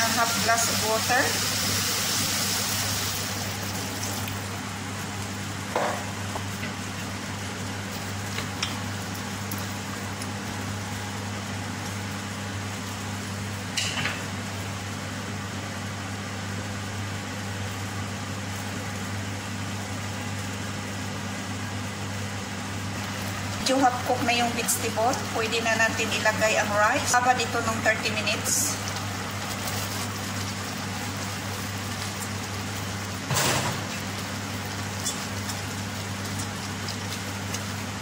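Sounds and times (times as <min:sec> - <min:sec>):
pot hissing on stove: 0:00.0 - 0:04.2.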